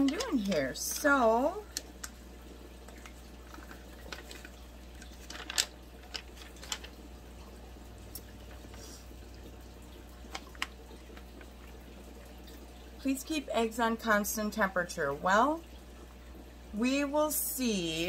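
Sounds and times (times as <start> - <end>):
paper rustling and crackling: 3.5 - 7.0.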